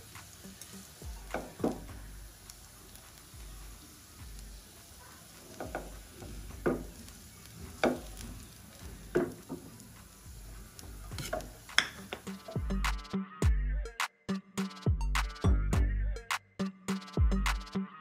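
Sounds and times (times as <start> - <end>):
faint sizzle: 0.0 - 12.8
spatula scraping frying pan: 11.1 - 12.3.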